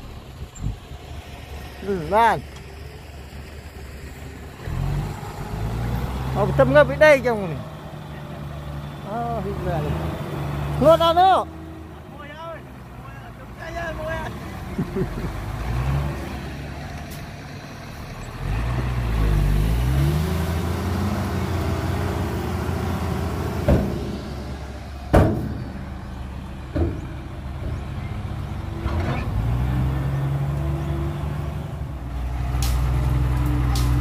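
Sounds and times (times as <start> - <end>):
heavy diesel engine revving: 0.0 - 34.0
sharp metallic knocks: 23.6 - 24.3, 25.1 - 25.8.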